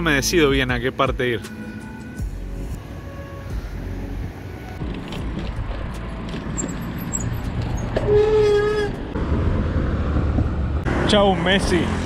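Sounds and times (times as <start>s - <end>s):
bicycle rolling on pavement: 4.4s - 9.1s.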